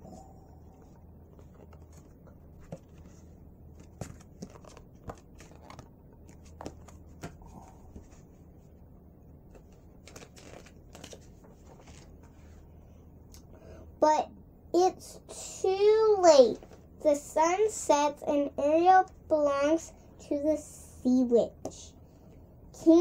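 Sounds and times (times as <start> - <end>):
low steady hum: 0.0 - 23.0
paper pages rustling: 0.8 - 8.4, 9.5 - 12.6.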